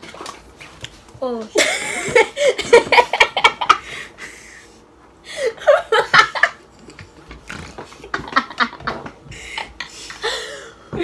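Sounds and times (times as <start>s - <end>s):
women laughing: 1.6s - 4.7s, 5.3s - 6.6s, 8.0s - 10.7s.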